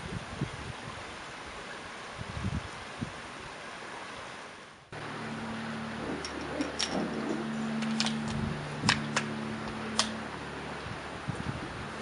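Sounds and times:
light wind noise: 0.0 - 12.0
steady low hum: 4.8 - 12.0.

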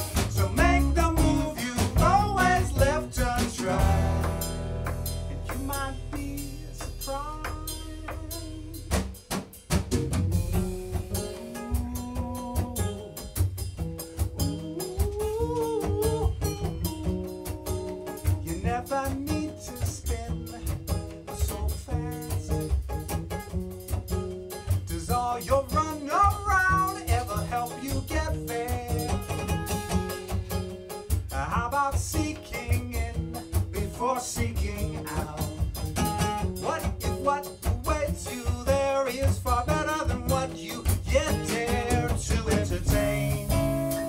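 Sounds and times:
melodic lead line: 0.0 - 8.0
acoustic guitars strumming: 0.0 - 44.0
drum kit beat: 0.0 - 44.0.

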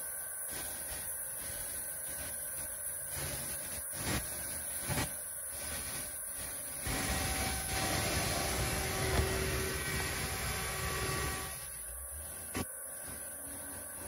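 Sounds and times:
machining center whining: 5.6 - 14.0.

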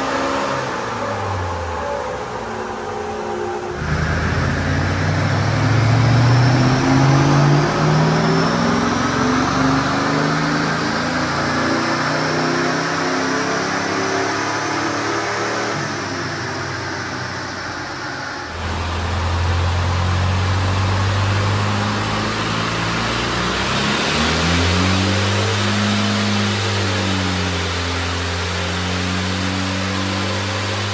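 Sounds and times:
diesel engine running steadily: 0.8 - 7.4, 15.8 - 30.9
engine running under load: 3.7 - 9.6, 17.7 - 30.9.

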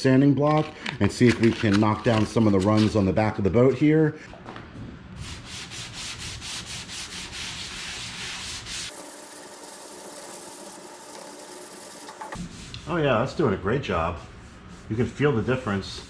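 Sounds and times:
sanding block rasping on metal: 5.2 - 13.0.

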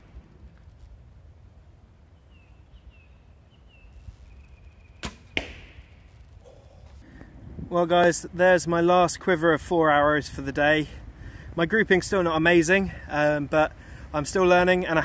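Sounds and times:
arrow thud into target: 5.0 - 5.9
bow string snap: 5.0 - 6.0.

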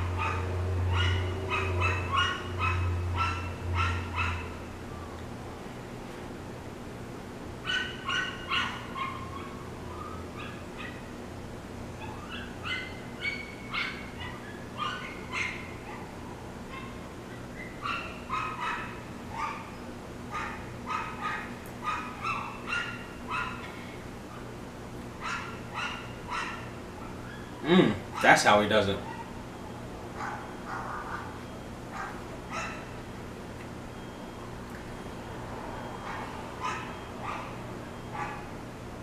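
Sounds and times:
dog yipping: 0.0 - 4.6, 7.6 - 11.2, 12.0 - 23.7, 25.2 - 28.4, 29.0 - 29.4, 30.2 - 33.0, 35.9 - 38.6
steady low hum: 0.0 - 39.0.

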